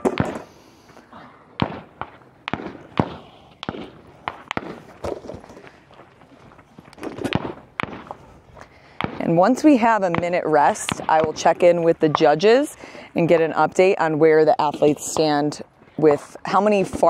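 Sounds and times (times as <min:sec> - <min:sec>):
gunshots echoing: 0:00.0 - 0:00.6, 0:01.6 - 0:05.9, 0:07.0 - 0:08.2, 0:08.9 - 0:11.8.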